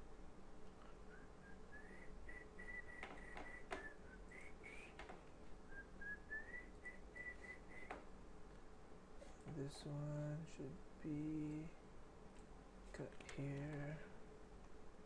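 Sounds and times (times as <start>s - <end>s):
person whistling a tune: 1.1s - 5.0s, 5.7s - 8.0s.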